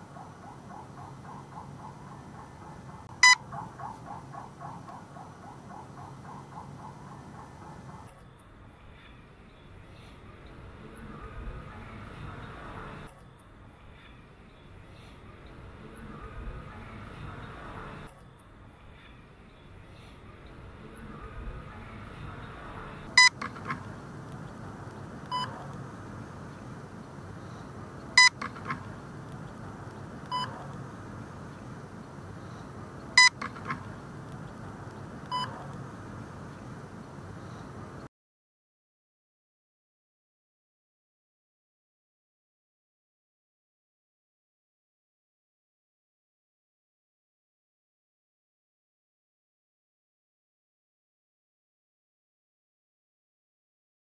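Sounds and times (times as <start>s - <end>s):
animal chirping: 0.0s - 8.0s
faint low hum: 0.0s - 38.1s
short electronic beeps: 3.2s - 3.4s, 23.1s - 23.8s, 25.3s - 25.6s, 28.2s - 28.8s, 30.3s - 30.6s, 33.2s - 33.8s, 35.3s - 35.6s.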